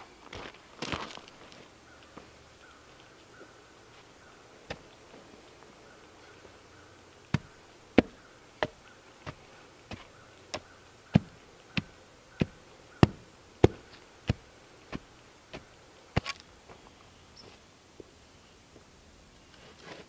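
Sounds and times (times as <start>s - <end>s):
hand tamper pounding soil: 7.2s - 16.4s.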